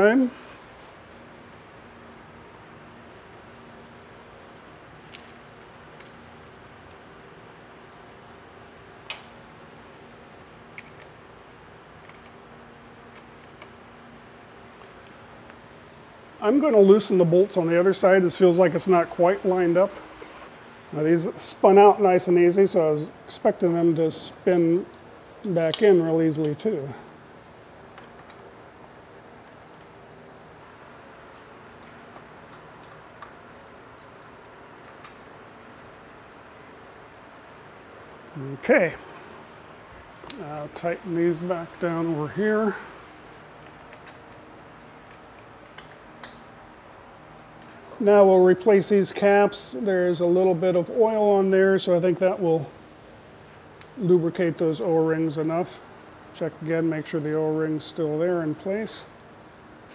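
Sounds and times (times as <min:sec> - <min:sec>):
faint steady hum: 0:00.0 - 0:59.9
bolts and wrench clicking on metal: 0:12.0 - 0:12.4, 0:13.1 - 0:13.8, 0:24.3 - 0:26.6, 0:30.8 - 0:35.3, 0:43.6 - 0:46.5.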